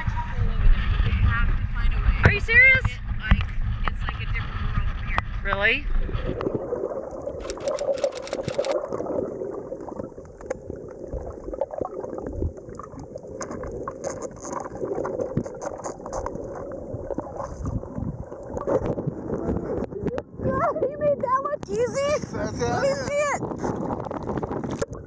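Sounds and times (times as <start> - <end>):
muffled underwater water noise: 0.0 - 25.0
underwater clicks and crackles: 5.0 - 22.2, 22.8 - 25.0.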